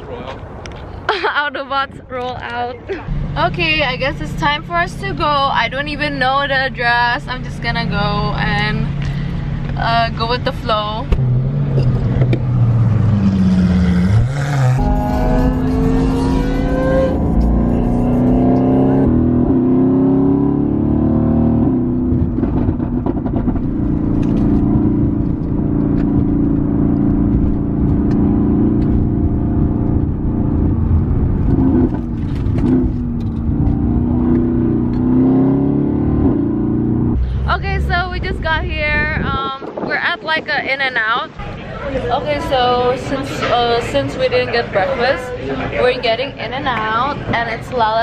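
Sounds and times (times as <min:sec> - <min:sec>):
car engine accelerating: 0:03.0 - 0:39.4.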